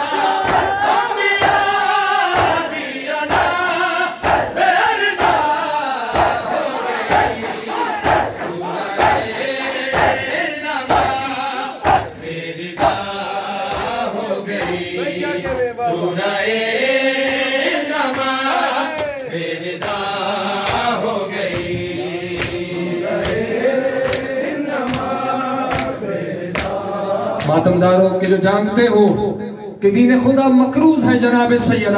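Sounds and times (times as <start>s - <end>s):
men chanting together: 0.0s - 28.3s
hands slapping chests: 0.4s - 1.7s, 2.3s - 4.6s, 5.2s - 10.3s, 10.9s - 14.9s, 17.2s - 26.0s, 26.6s - 26.8s.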